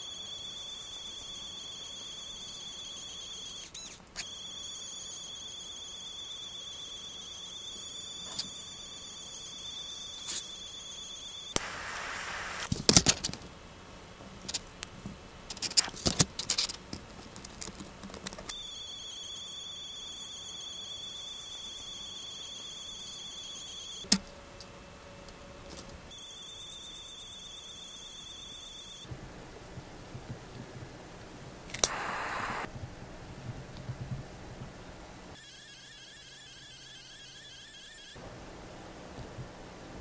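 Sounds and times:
pen feed motor whining: 0.0 - 12.7, 18.5 - 24.1, 26.1 - 29.1, 31.7 - 32.7, 35.4 - 38.2
sharp click: 31.7 - 32.7.

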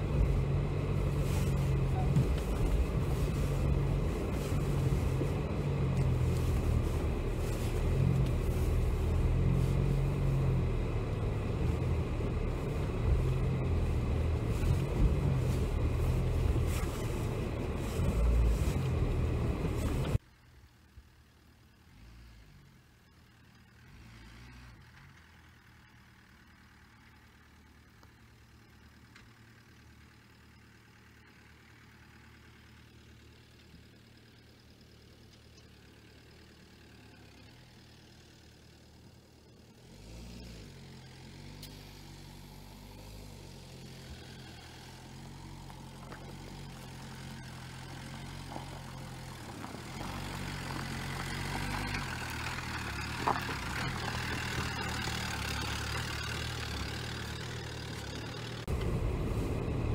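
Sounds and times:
car engine and rumble: 0.0 - 59.9
distant engine hum: 43.8 - 59.9.

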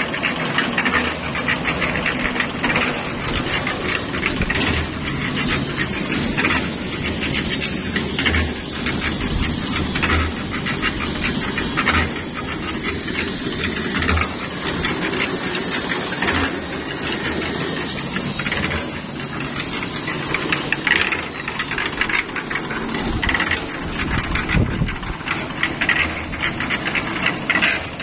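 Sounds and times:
small engine knocking: 0.0 - 28.0
short falling whistles: 16.3 - 21.6.

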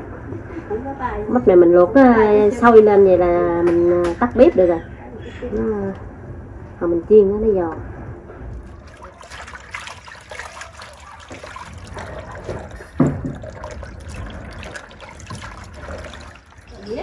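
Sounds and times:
water running into basin: 8.5 - 17.0
hands swishing vegetables in water: 8.6 - 17.0.

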